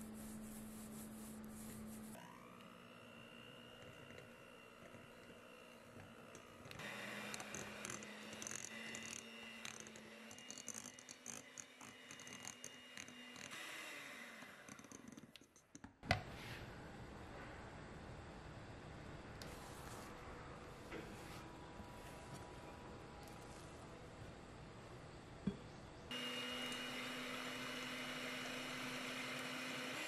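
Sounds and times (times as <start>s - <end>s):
electric hand mixer running: 2.2s - 15.2s, 26.1s - 30.0s.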